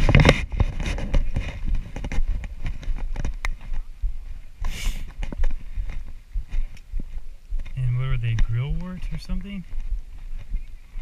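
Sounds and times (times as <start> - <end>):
wind rumbling on microphone: 0.0 - 11.0
brief scrape: 4.7 - 5.1.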